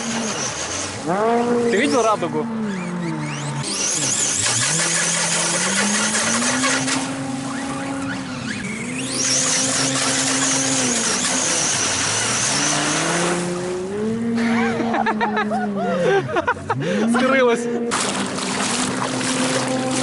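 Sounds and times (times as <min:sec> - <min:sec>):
electric motor whining: 0:00.0 - 0:15.0.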